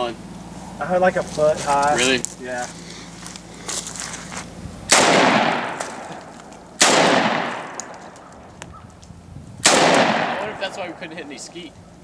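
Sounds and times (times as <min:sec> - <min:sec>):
shotgun shots with echo: 0:04.9 - 0:08.2, 0:09.6 - 0:11.0.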